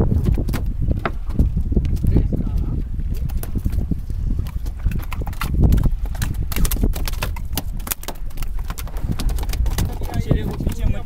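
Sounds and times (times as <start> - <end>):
fish thrashing against a boat: 2.9 - 11.0.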